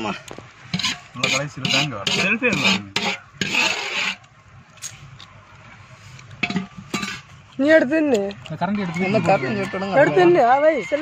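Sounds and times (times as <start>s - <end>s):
scraping food from cooking pot: 0.0s - 5.2s.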